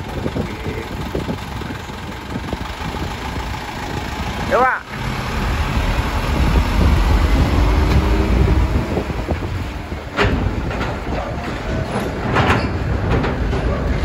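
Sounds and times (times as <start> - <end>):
diesel engine rumble: 0.0 - 14.0.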